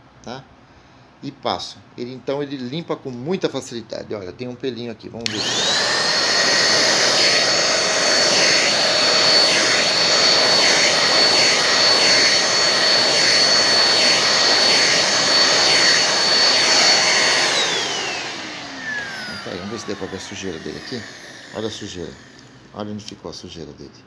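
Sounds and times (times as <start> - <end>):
vacuum cleaner running: 5.2 - 22.8.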